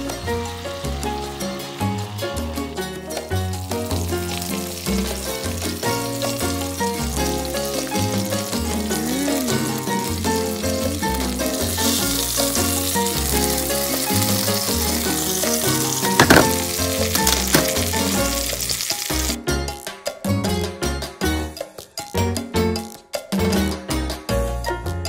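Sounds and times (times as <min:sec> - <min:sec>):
fish sizzling in a frying pan: 0:00.0 - 0:19.9
background music: 0:00.0 - 0:25.0.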